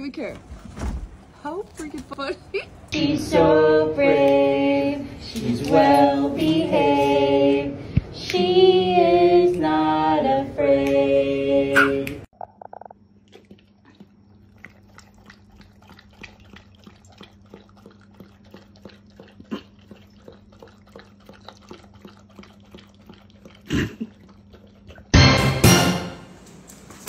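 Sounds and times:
dog lapping milk from bowl: 13.2s - 25.5s.

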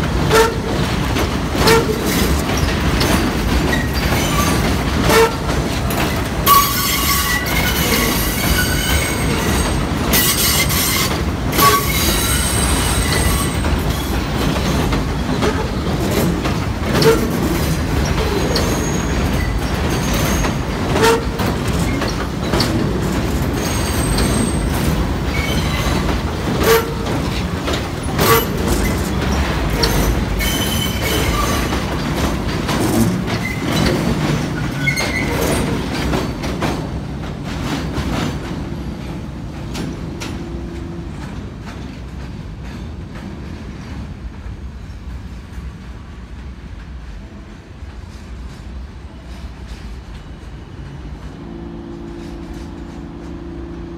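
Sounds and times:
wheels clacking over rail joints: 0.0s - 47.0s
subway train wheels rumbling: 0.0s - 53.9s
high-pitched wheel squeal: 6.5s - 13.6s.

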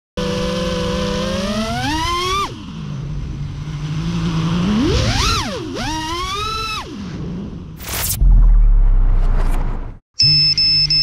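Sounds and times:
quadcopter motors whining: 0.2s - 7.6s.

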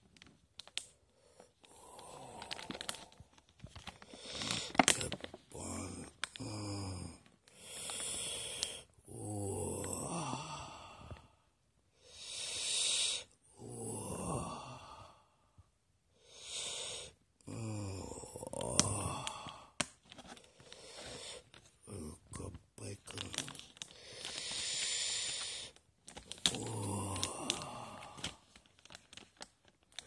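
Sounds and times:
man moaning: 4.9s - 7.3s, 9.0s - 11.3s, 13.5s - 15.2s, 17.4s - 19.8s, 26.4s - 28.4s
hissing breath: 12.0s - 13.3s, 23.9s - 25.8s.

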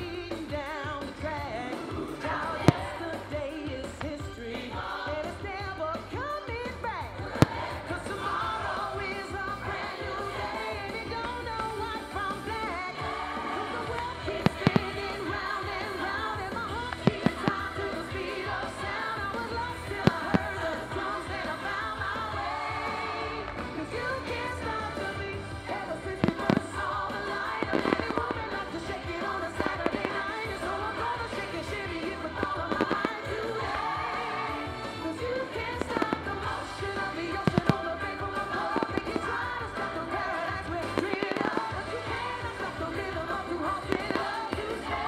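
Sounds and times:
music with singer: 0.0s - 45.0s
firework bangs: 14.0s - 16.0s, 16.8s - 18.1s.

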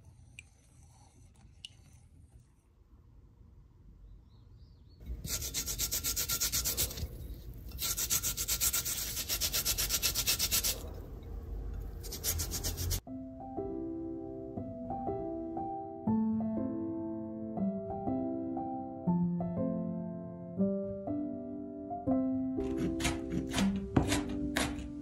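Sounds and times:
peel scraping on a metal grater: 7.7s - 10.8s
soft piano music: 13.0s - 25.0s.

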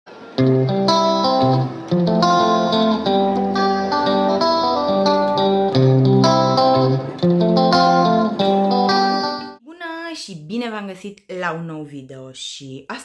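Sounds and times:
plucked guitar notes: 0.1s - 9.6s.

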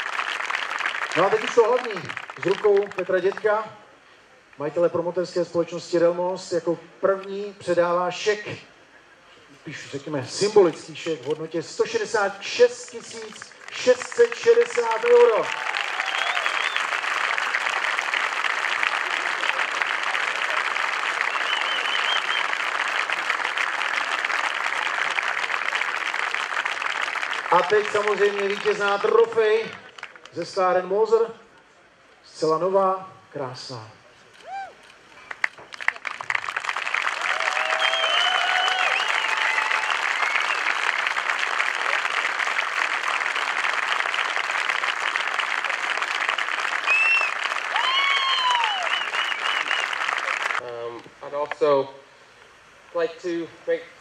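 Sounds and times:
crowd applauding: 0.0s - 3.5s, 12.6s - 30.4s, 35.2s - 50.6s.

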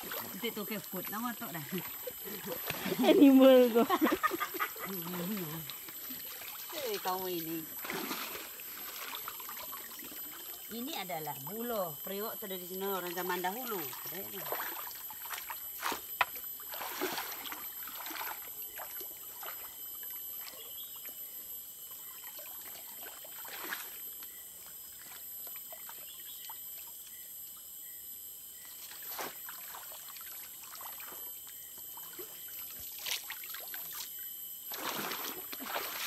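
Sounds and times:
stream water trickling: 0.0s - 27.8s, 28.4s - 36.0s
net splashing through water: 7.7s - 10.4s, 16.6s - 19.6s, 32.8s - 34.0s, 34.7s - 36.0s.

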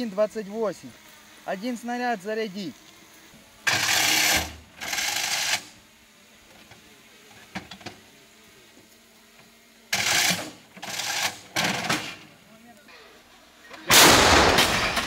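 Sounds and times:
loud bursts: 13.8s - 15.0s.

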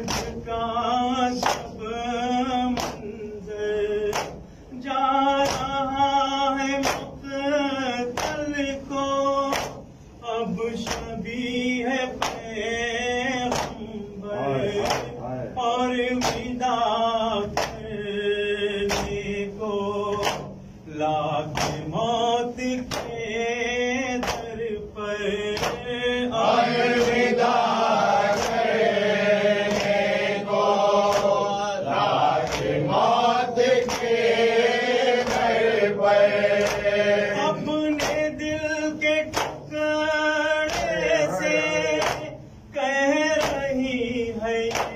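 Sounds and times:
men chanting a lament: 0.0s - 44.9s
rhythmic chest-beating slaps: 0.0s - 44.9s.

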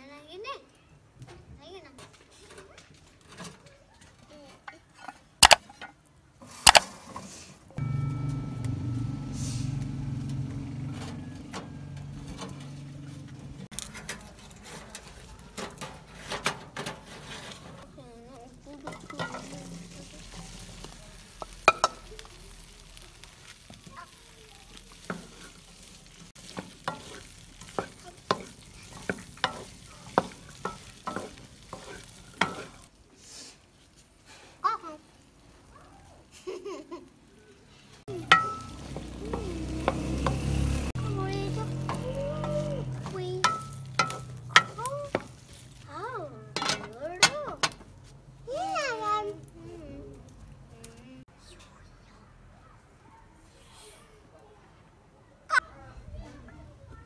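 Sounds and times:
okra sizzling in hot oil: 5.4s - 46.6s
low hum: 7.8s - 13.7s
wooden spatula knocking pan: 26.4s - 32.9s, 38.1s - 41.1s, 41.7s - 45.5s
sharp metal clanks: 38.2s - 38.9s, 43.4s - 45.3s.

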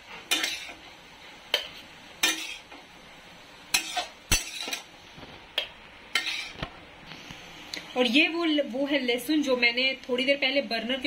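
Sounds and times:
metal spatula scraping metal pan: 0.2s - 0.8s, 2.2s - 2.7s, 3.7s - 4.9s, 6.1s - 6.6s.

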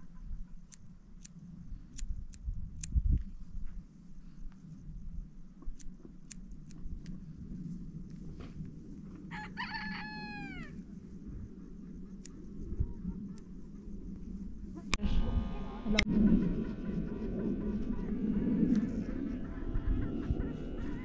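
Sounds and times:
rooster crowing: 9.3s - 10.8s.

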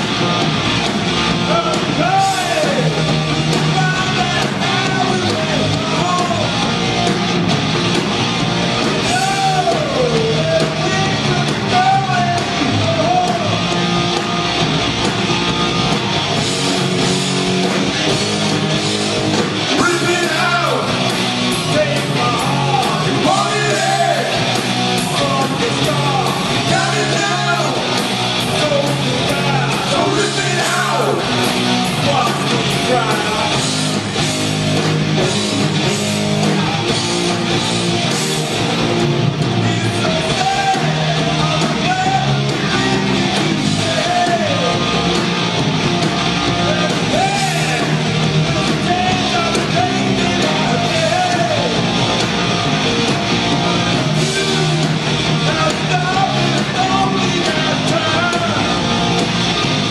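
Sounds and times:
bass guitar: 0.0s - 59.9s
drums: 0.0s - 59.9s
electric guitars: 0.0s - 59.9s
lead singer singing: 1.5s - 6.6s, 9.0s - 13.7s, 19.7s - 20.9s, 21.5s - 34.0s, 39.5s - 45.0s, 46.5s - 51.9s, 54.0s - 58.9s.

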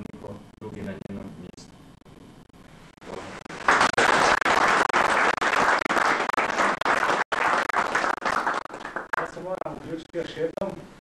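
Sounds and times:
people applauding: 3.1s - 9.7s.

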